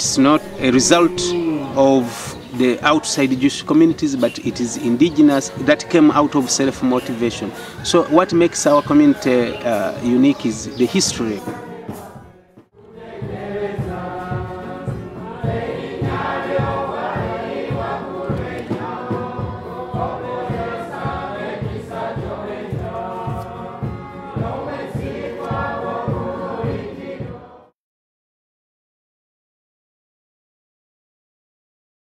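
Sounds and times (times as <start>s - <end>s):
choir singing: 0.0s - 27.8s
drum beat: 0.4s - 2.1s.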